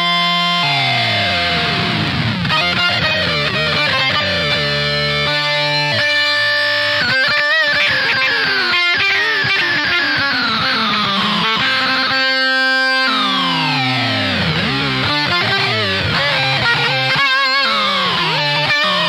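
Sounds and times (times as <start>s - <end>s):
buzzy synth electric guitar: 0.0s - 19.0s.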